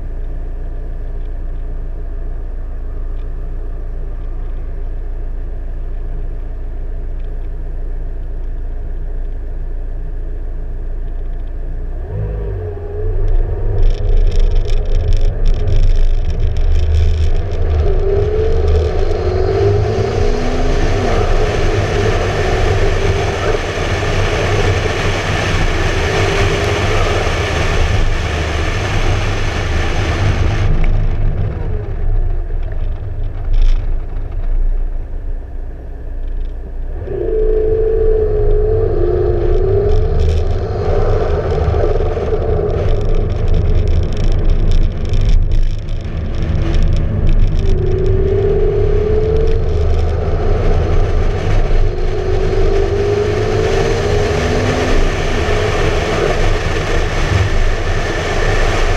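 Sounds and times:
car engine idling and accelerating: 0:00.0 - 0:58.9
wind rush on microphone: 0:12.0 - 0:35.5, 0:36.2 - 0:58.9.

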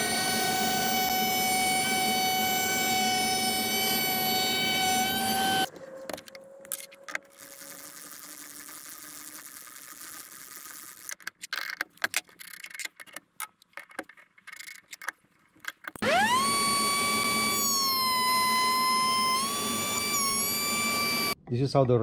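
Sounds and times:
router motor whine: 0:00.0 - 0:05.7, 0:16.0 - 0:21.4.

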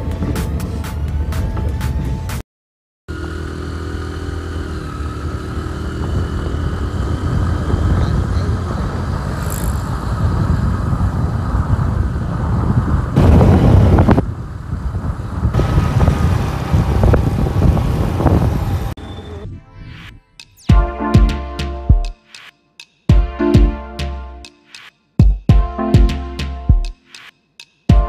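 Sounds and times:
wind rumbling on microphone: 0:00.0 - 0:02.4, 0:05.0 - 0:19.0
motorcycle engine running: 0:03.1 - 0:18.9.

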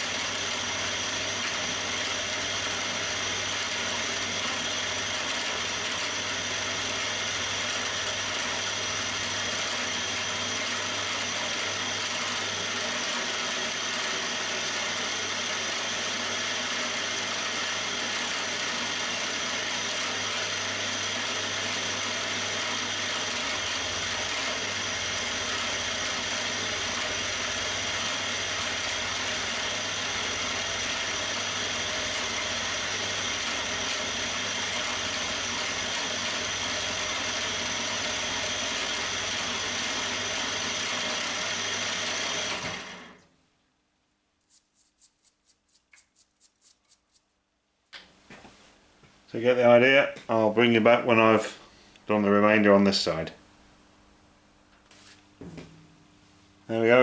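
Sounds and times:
milling machine cutting metal: 0:00.0 - 0:43.1.

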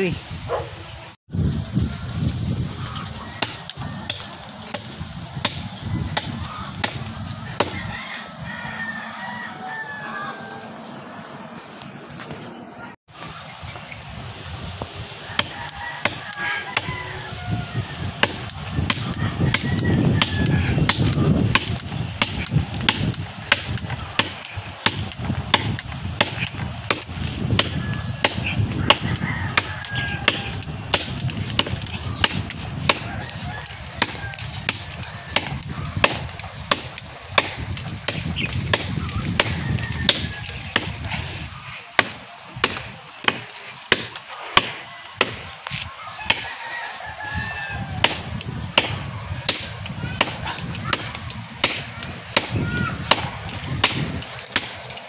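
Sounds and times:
blade chopping tree trunk: 0:03.4 - 0:07.9, 0:15.3 - 0:17.0, 0:18.2 - 0:41.2, 0:41.9 - 0:46.6, 0:48.0 - 0:55.0.

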